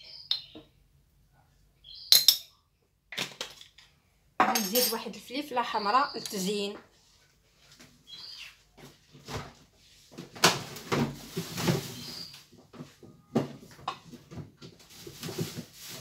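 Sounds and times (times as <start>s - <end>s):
kitchenware knocking and clunking: 4.4s - 5.1s.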